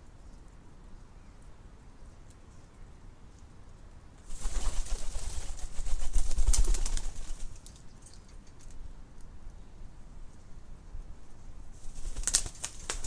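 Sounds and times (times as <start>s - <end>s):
bird pecking seed clicks: 12.1s - 13.0s.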